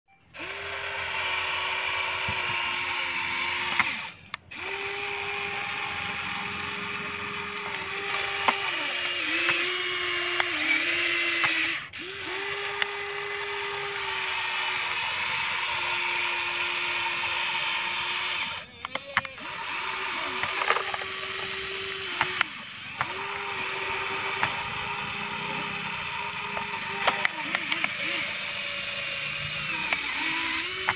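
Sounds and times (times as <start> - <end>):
toy electric motors whining: 0.2 - 30.9
sharp clicks: 3.6 - 4.8, 7.6 - 12.9, 18.4 - 24.8, 25.8 - 28.8, 29.6 - 30.9.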